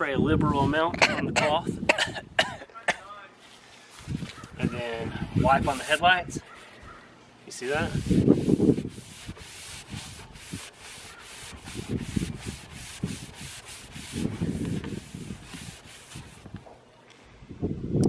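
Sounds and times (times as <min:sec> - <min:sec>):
paper towel scrubbing plastic lens: 0:05.4 - 0:06.2, 0:07.7 - 0:16.6.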